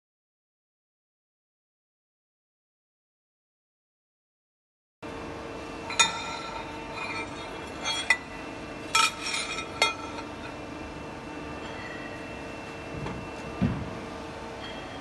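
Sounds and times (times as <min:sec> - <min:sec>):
steel sheet clanking against tooling: 0:08.9 - 0:10.3.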